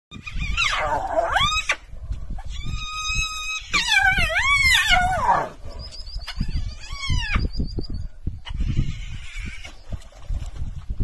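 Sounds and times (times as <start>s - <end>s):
wild animals whooping and calling: 2.4s - 7.5s.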